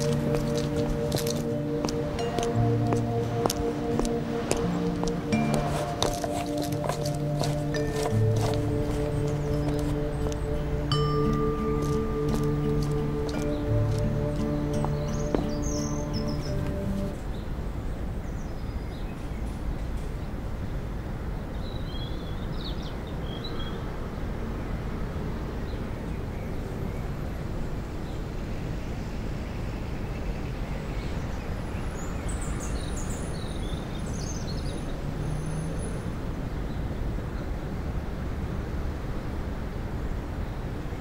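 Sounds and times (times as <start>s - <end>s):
birds chirping: 0.0s - 17.5s
distant city traffic rumble: 0.0s - 41.0s.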